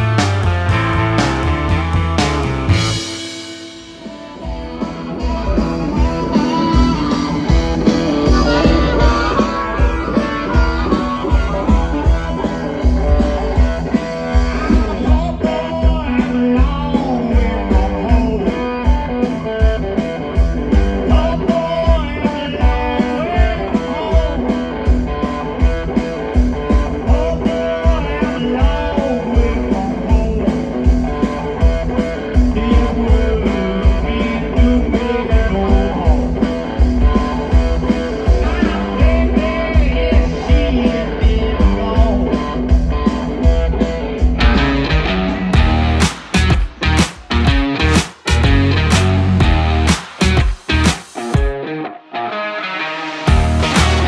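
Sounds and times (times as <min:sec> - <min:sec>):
drums keeping a steady beat: 0:00.0 - 0:51.6, 0:53.3 - 0:54.0
electric guitar: 0:00.0 - 0:54.0
person singing: 0:03.0 - 0:19.8, 0:21.0 - 0:25.6, 0:26.7 - 0:43.3, 0:52.5 - 0:54.0.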